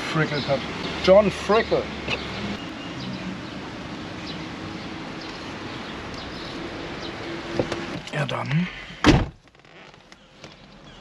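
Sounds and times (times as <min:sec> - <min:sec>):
street noise: 0:00.0 - 0:11.0.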